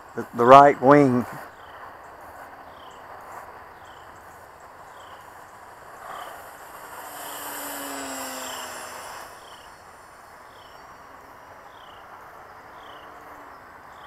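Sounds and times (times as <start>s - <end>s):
electric model plane motor whining: 5.0s - 11.8s.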